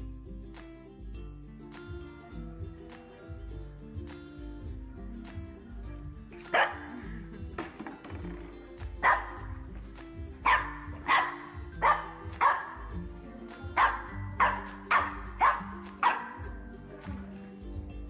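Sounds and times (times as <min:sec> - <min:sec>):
puppy barking: 0:06.5 - 0:07.2, 0:09.0 - 0:09.6, 0:10.4 - 0:12.9, 0:13.8 - 0:16.5.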